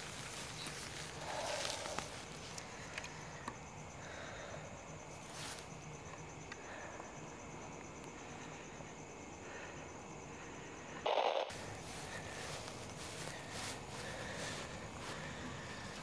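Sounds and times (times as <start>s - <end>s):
rustling in dry grass: 0.0s - 3.3s, 5.1s - 5.9s, 11.5s - 16.0s
high insect trill: 0.0s - 16.0s.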